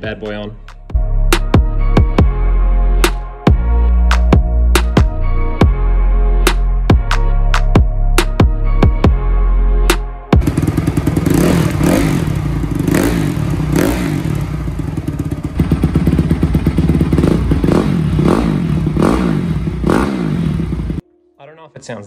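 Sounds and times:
motorcycle engine idling and revving: 10.4 - 21.0.

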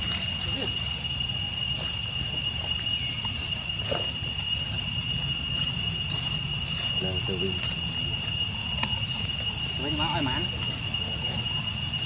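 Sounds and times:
insects droning: 0.0 - 12.0.

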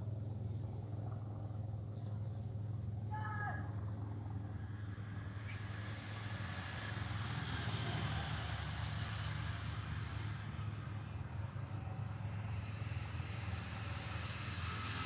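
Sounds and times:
traffic engine rumble: 0.0 - 15.0
vehicle passing: 4.5 - 15.0.

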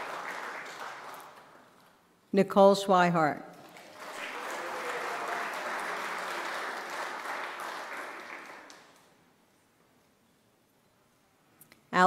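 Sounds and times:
audience applauding: 0.0 - 1.8, 3.6 - 9.3.

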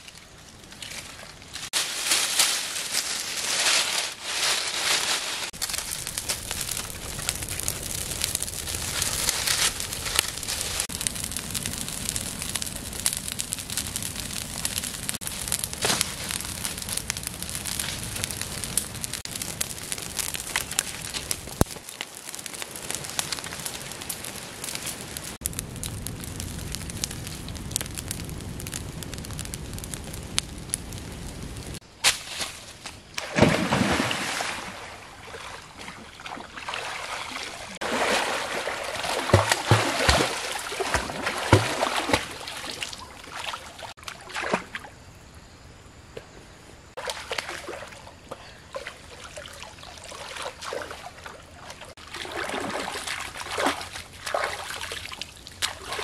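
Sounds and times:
fire crackling: 0.0 - 35.0, 36.8 - 44.3, 46.8 - 56.0
person swimming and splashing: 33.2 - 42.8, 52.1 - 54.9.

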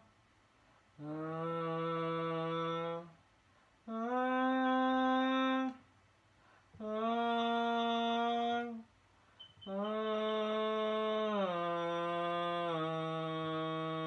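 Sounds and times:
person humming long notes: 1.0 - 3.2, 3.9 - 5.8, 6.8 - 8.9, 9.7 - 14.0.

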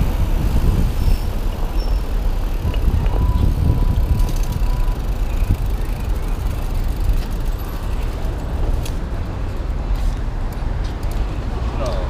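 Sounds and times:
wind on microphone: 0.0 - 5.9
bike tyres on paving stones: 0.0 - 12.0.

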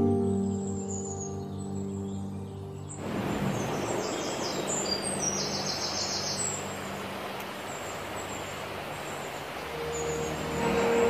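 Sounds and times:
small birds chirping: 0.0 - 11.0
rushing outdoor ambience: 2.7 - 11.0.

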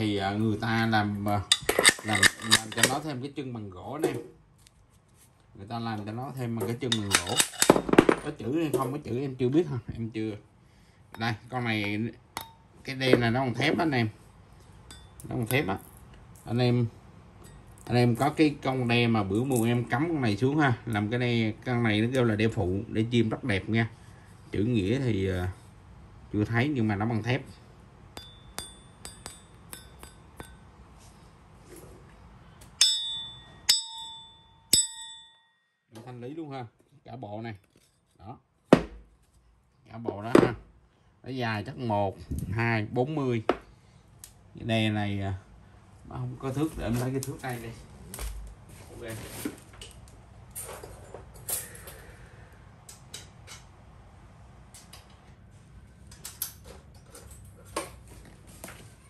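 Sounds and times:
light metal clinks: 14.9 - 15.7
ringing anvil strikes: 28.2 - 30.6, 32.8 - 35.8.

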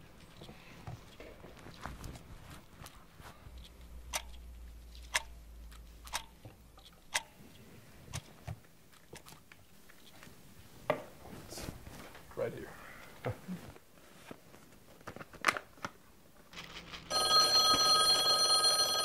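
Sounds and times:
wall clock ticking: 4.1 - 4.4, 5.1 - 5.4.

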